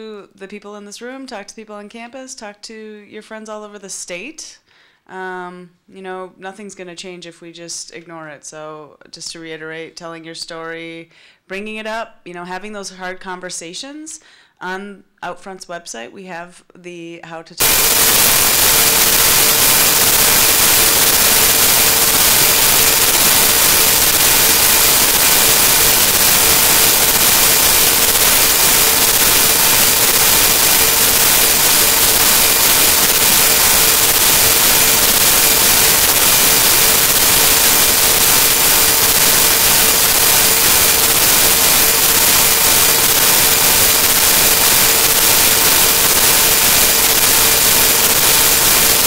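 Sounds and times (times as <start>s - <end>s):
loud static hiss: 17.6s - 49.0s
steady hum-like tone: 17.6s - 49.0s.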